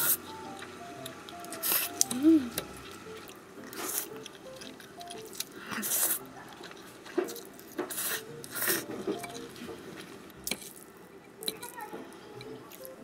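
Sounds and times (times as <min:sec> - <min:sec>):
mouth eating noises: 0:00.0 - 0:13.0
cutlery clinking against dishes: 0:06.6 - 0:09.8.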